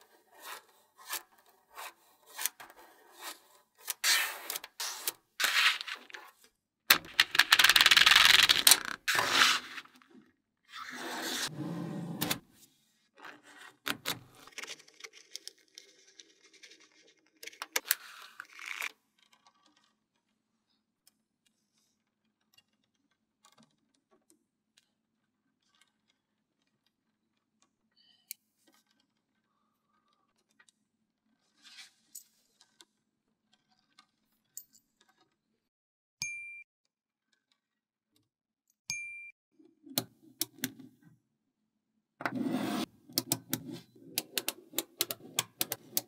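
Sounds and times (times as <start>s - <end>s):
magnetic balls clicking together: 6.9s - 9.1s.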